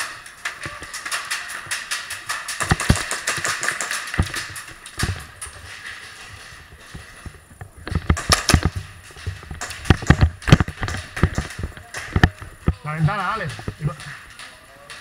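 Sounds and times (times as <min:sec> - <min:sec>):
airsoft guns firing: 0:00.0 - 0:05.9, 0:07.9 - 0:12.5.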